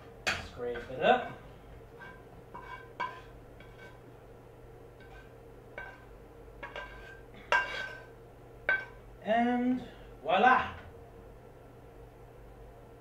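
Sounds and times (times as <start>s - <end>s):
steady low hum: 0.0s - 13.0s
spatula scraping frying pan: 0.8s - 4.0s, 5.0s - 8.1s, 8.7s - 9.0s.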